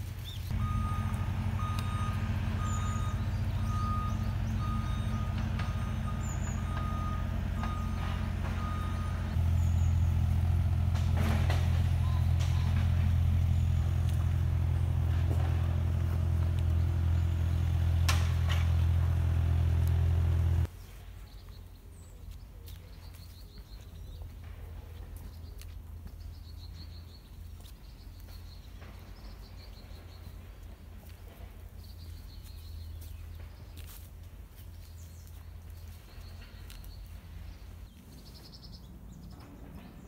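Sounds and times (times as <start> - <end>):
small birds chirping: 0.0 - 10.9, 11.5 - 40.0
heavy diesel engine running: 0.0 - 20.7.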